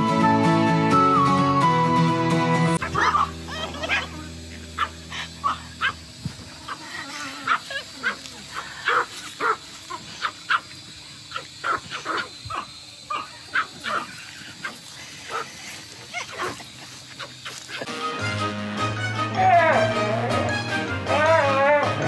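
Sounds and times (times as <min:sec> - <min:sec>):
small dogs yapping: 0:02.8 - 0:17.9.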